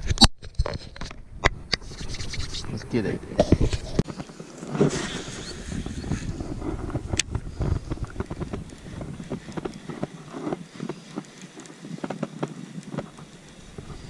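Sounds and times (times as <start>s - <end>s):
wind buffeting microphone: 1.1s - 14.0s.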